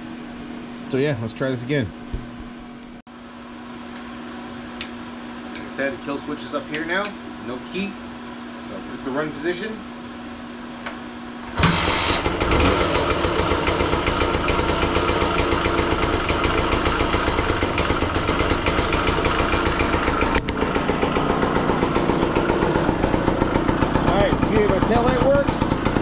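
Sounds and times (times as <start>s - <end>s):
scooter engine starting and idling: 11.5s - 26.0s.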